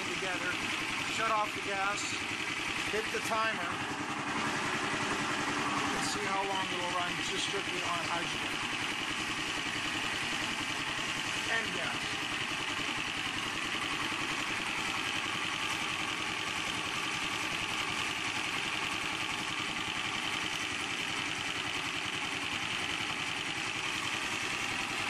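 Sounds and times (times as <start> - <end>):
single-cylinder engine running: 0.0 - 25.0.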